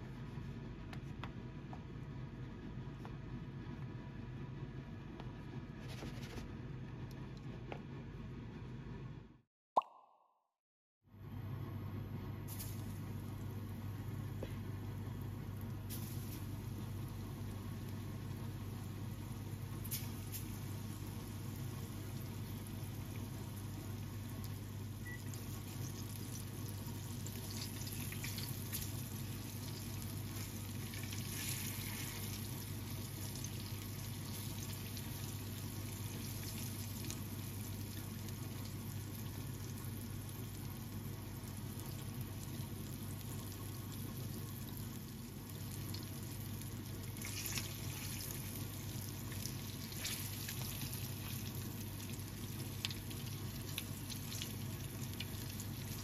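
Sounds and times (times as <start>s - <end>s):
chicken frying in oil: 12.4s - 56.0s.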